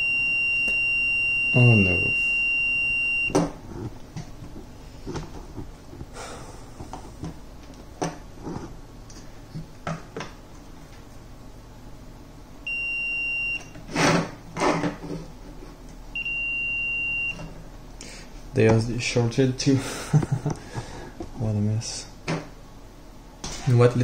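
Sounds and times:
high continuity beeps: 0.0 - 3.4, 12.7 - 13.7, 16.1 - 17.4.

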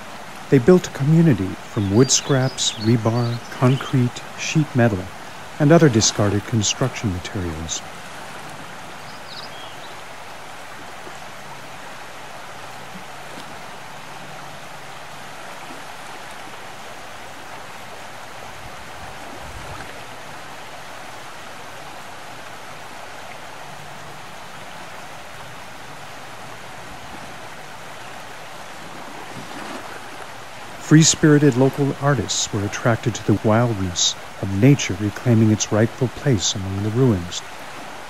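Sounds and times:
rushing outdoor ambience: 0.0 - 38.0.

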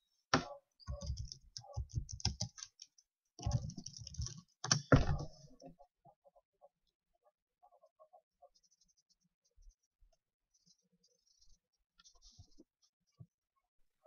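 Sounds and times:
keyboard typing: 0.4 - 5.3.

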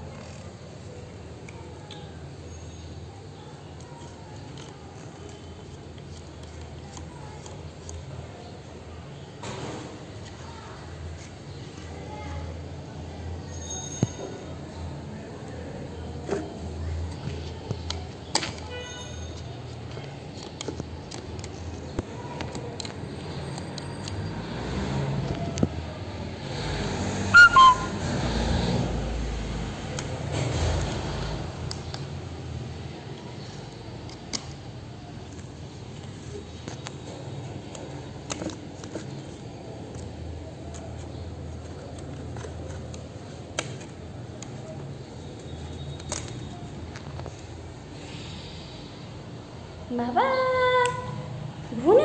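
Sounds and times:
plastic toy rattling: 3.7 - 8.2.

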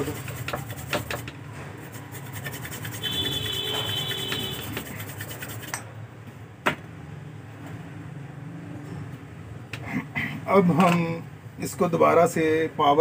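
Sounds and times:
cotton swab scrubbing circuit board: 1.8 - 5.8.

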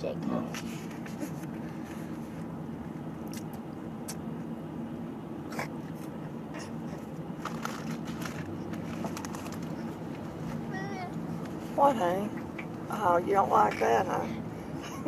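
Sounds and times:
car cabin hum: 6.0 - 15.0.

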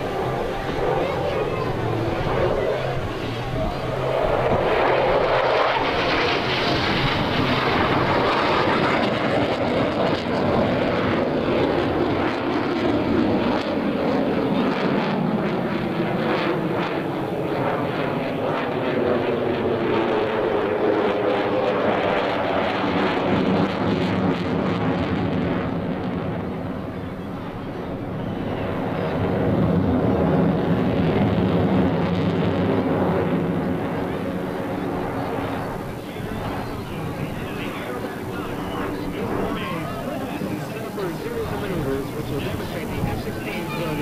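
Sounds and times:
jet engine roaring: 0.0 - 44.0.

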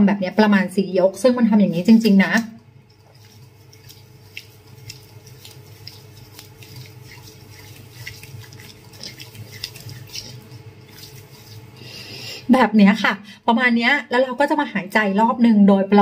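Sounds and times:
low steady hum: 0.0 - 16.0
soapy fingers rubbing skin: 1.6 - 12.4.

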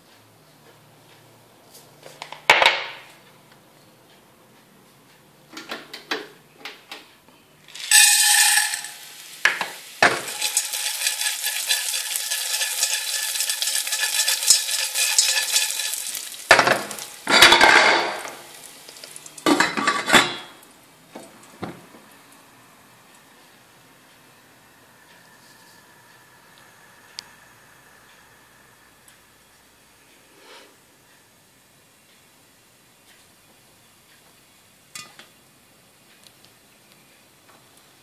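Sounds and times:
kernels poured into saucepan: 7.7 - 19.8
kernels rattling in metal pan: 7.7 - 20.5
pan and glass lid clattering: 7.8 - 18.5, 19.5 - 20.6.

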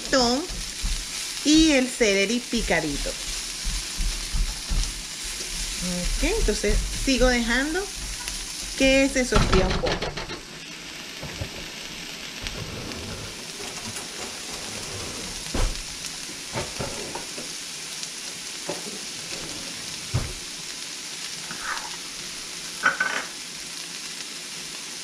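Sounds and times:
vegetables sizzling in hot oil: 0.0 - 25.0
utensils knocking and clinking: 9.3 - 10.5.

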